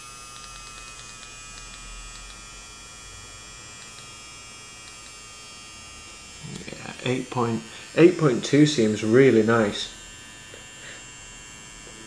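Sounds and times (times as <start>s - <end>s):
tattoo machine whining: 0.0s - 12.0s.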